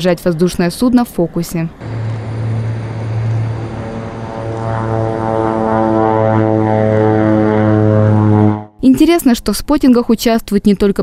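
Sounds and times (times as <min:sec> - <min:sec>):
turboprop plane taking off: 0:01.7 - 0:08.7.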